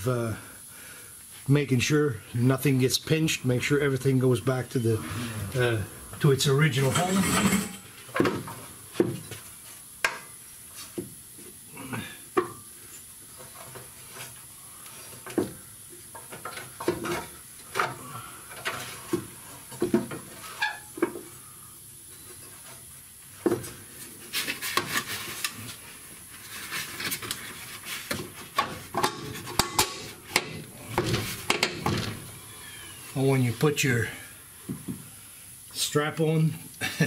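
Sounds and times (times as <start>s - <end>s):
metal parts rattling: 6.7s - 7.9s.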